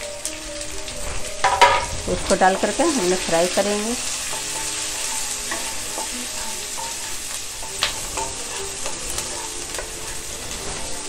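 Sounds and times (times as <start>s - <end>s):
onions sizzling in a pan: 0.0s - 11.0s
spatula scraping and knocking pan: 1.4s - 11.0s.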